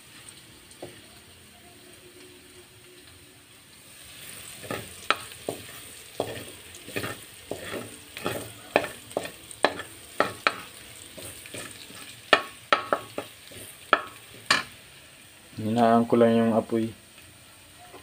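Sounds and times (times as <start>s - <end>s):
garlic sizzling in oil: 0.0s - 18.0s
spatula scraping a wok: 3.9s - 14.8s.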